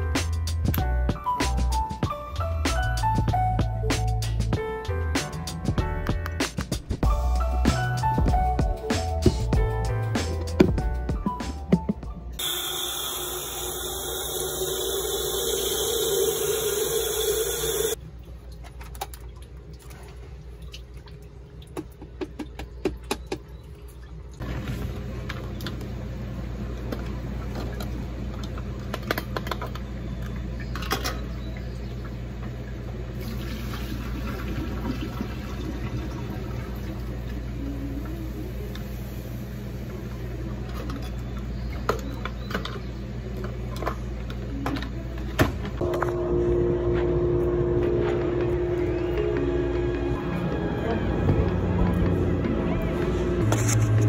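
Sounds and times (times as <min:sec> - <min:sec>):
kettle low hum: 0:12.4 - 0:18.0, 0:45.8 - 0:54.0
tap water pouring into kettle: 0:33.2 - 0:37.4.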